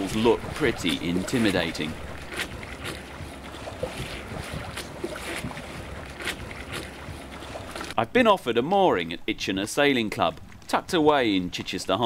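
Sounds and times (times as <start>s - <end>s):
splashes against hull: 0.0s - 8.0s
water rushing past boat: 0.0s - 8.0s.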